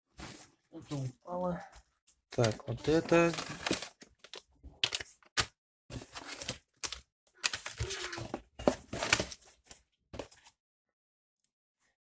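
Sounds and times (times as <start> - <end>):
plastic bags crinkling: 2.4 - 4.4.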